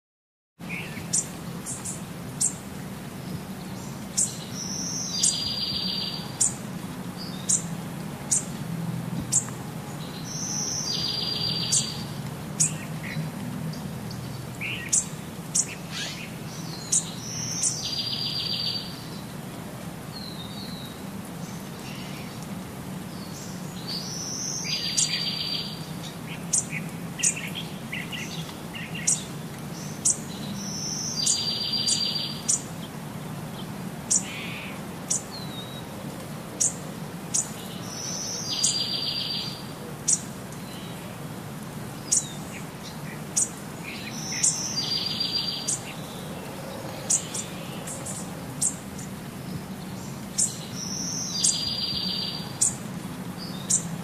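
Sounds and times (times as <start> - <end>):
birds chirping: 0.6 - 8.6, 9.2 - 19.4, 20.1 - 41.3, 41.9 - 54.0
bird song with buzzy trill: 3.7 - 6.6, 10.1 - 12.8, 14.7 - 19.0, 26.5 - 32.6, 36.6 - 41.0, 42.1 - 46.2, 49.8 - 52.8.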